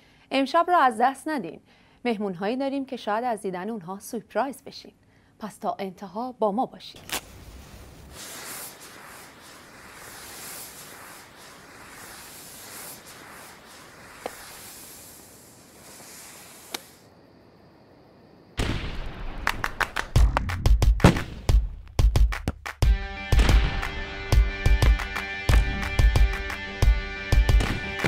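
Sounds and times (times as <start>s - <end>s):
firework cracks: 7.0s - 17.1s, 18.6s - 21.8s, 27.5s - 28.0s
firework fuse fizzing: 7.0s - 17.1s.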